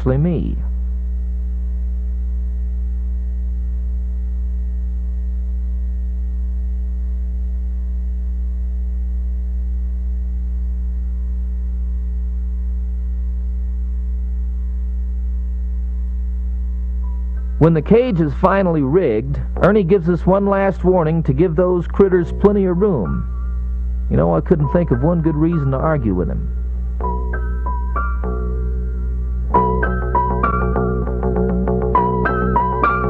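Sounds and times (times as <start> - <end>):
electrical mains hum: 0.0 - 33.0.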